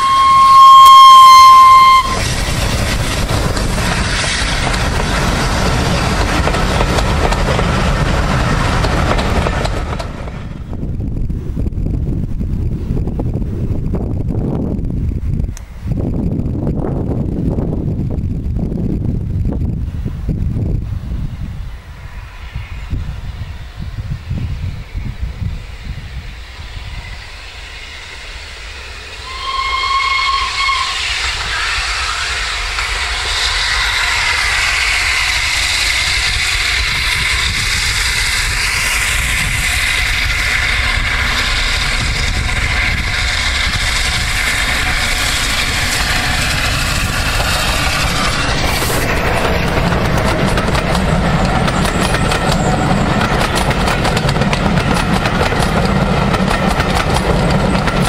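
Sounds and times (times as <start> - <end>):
steam locomotive whistle: 0.0 - 2.5, 26.3 - 47.4
train wheels clattering on track: 0.0 - 10.8, 25.6 - 58.0
steam locomotive passing: 0.0 - 58.0.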